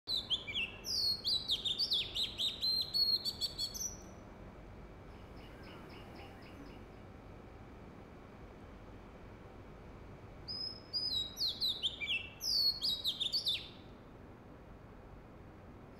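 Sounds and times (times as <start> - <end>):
bird singing whistled notes: 0.1 - 4.2, 10.5 - 13.9.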